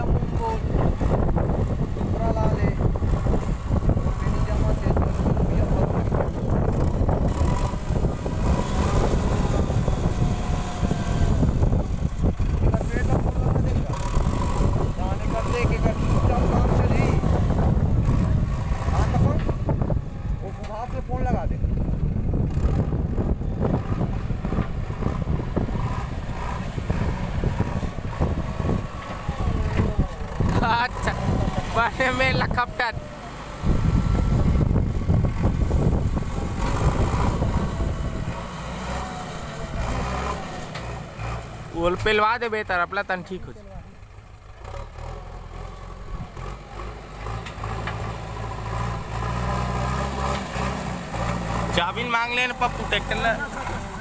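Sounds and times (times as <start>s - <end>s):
wind buffeting microphone: 0.0s - 42.1s
diesel engine rumbling: 0.0s - 54.0s.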